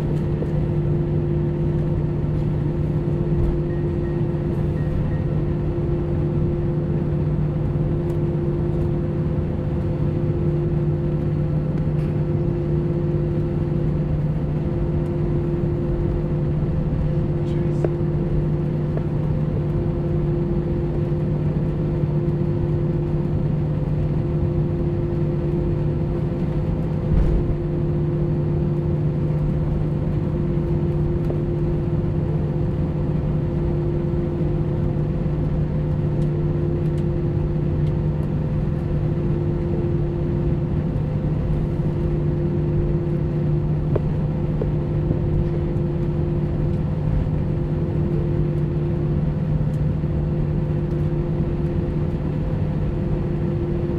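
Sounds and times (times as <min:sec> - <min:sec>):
jet engines humming at idle: 0:00.0 - 0:53.9
short thump: 0:27.1 - 0:27.4.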